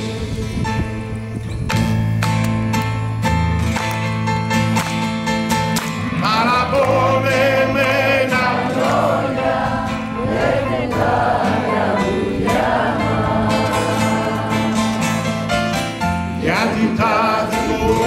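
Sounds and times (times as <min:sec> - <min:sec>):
guitar accompaniment: 0:00.0 - 0:18.0
voices singing long notes: 0:06.1 - 0:15.6, 0:16.2 - 0:18.0.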